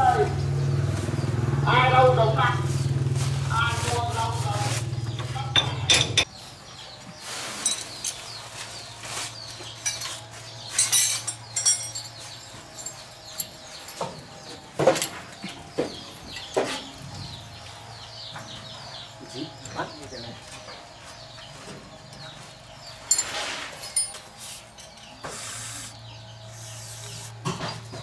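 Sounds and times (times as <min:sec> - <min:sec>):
poultry clucking and chirping: 0:02.6 - 0:28.0
knocks and clatter of tools: 0:05.2 - 0:06.4, 0:09.6 - 0:17.0, 0:23.1 - 0:25.3.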